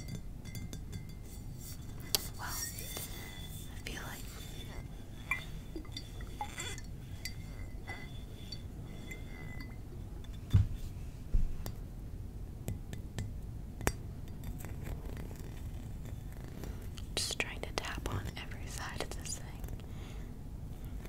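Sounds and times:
glass bottles clinking: 0:00.0 - 0:10.7.

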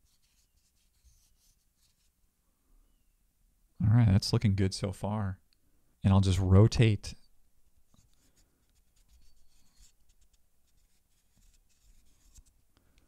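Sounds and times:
marker scratching on golf ball: 0:00.0 - 0:02.2, 0:07.9 - 0:12.5.

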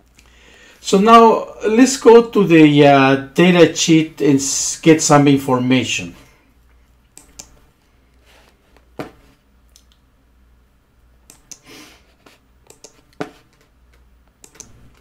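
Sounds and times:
low steady hum: 0:00.0 - 0:15.0
computer mouse clicking: 0:07.2 - 0:07.6, 0:11.3 - 0:15.0
soft rustle: 0:07.8 - 0:09.4.

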